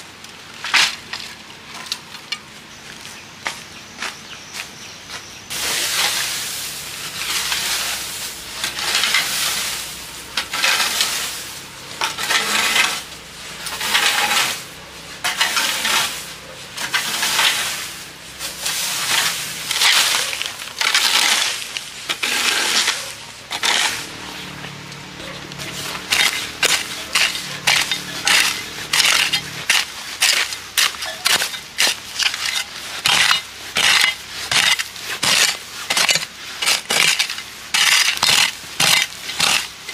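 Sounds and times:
scraping through dry straw: 5.5s - 39.9s
hoe chopping into soil: 25.6s - 39.9s.

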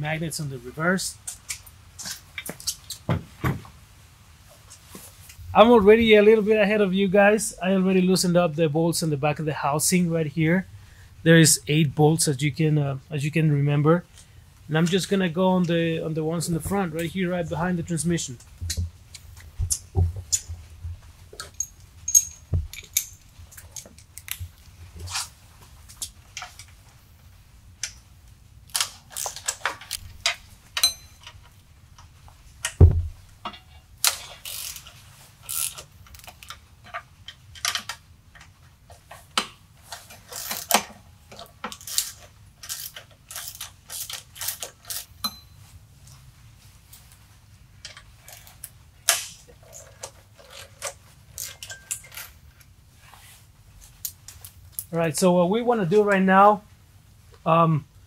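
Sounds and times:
hand tools clattering: 21.4s - 23.9s, 29.2s - 31.5s
heavy thump: 32.8s - 33.2s
socket ratchet wrench clicking: 34.4s - 34.9s, 35.5s - 36.5s.

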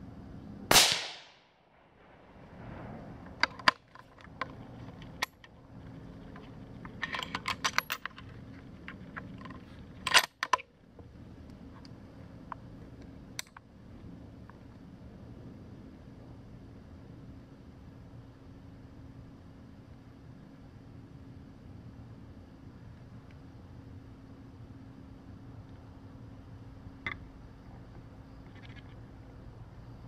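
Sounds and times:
rifle shot echoing: 0.7s - 2.2s
sharp clicks and knocks: 3.3s - 5.6s.

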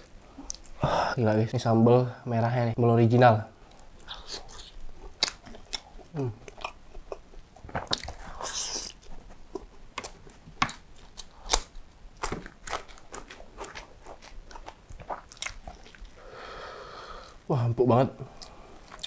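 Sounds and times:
crunching and wet chewing: 3.5s - 16.2s, 18.3s - 19.0s.

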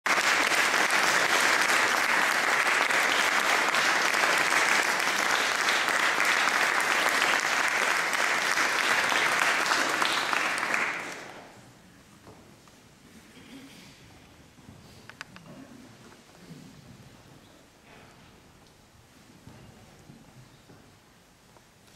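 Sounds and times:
audience applauding: 0.0s - 11.5s.

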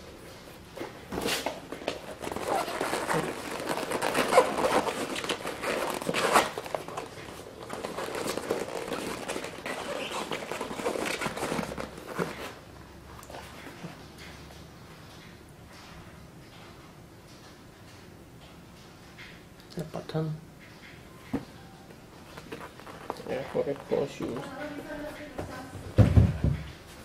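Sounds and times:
rustling and crinkling handling: 0.0s - 14.4s, 21.2s - 27.0s.

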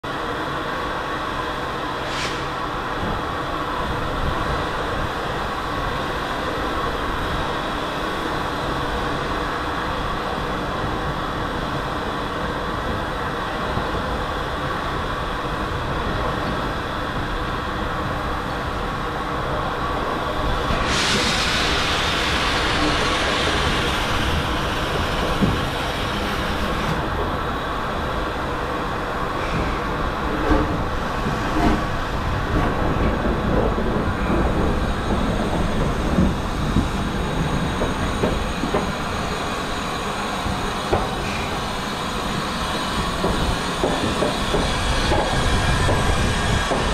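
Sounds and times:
steam locomotive rumbling: 0.0s - 46.9s
loud hiss of steam: 1.9s - 6.3s, 20.1s - 27.1s, 34.1s - 46.9s.

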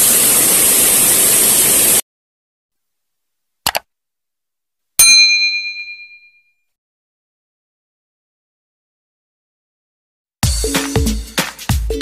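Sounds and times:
rushing outdoor noise: 0.0s - 2.0s
bright bell ding: 5.0s - 6.6s.

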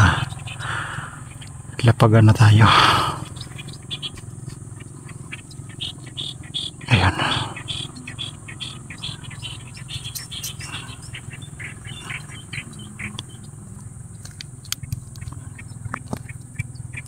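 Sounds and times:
small birds chirping: 0.0s - 17.0s
sharp clicks: 9.0s - 17.0s.

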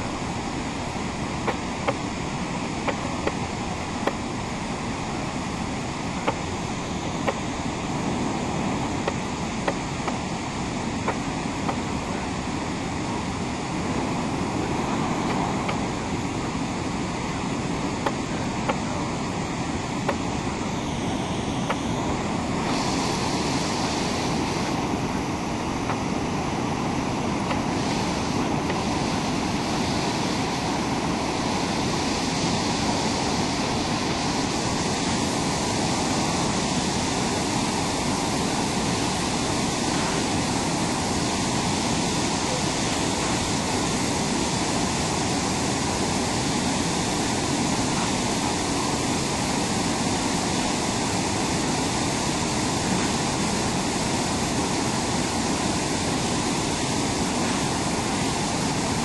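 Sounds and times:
whitewater rushing over rocks: 0.0s - 59.0s.

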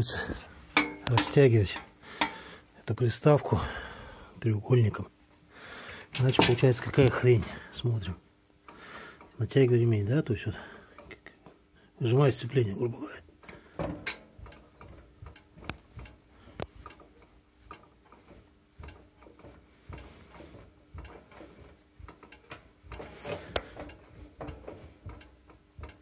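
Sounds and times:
metal parts clicking and knocking: 0.8s - 2.4s, 6.1s - 7.2s.

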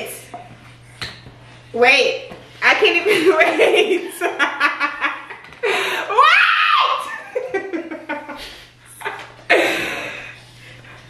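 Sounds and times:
young women laughing: 3.0s - 10.4s.

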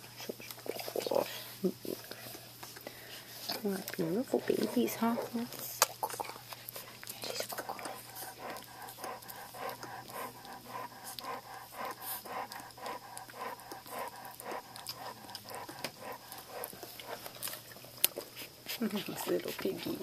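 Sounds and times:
dog panting: 0.2s - 20.0s.

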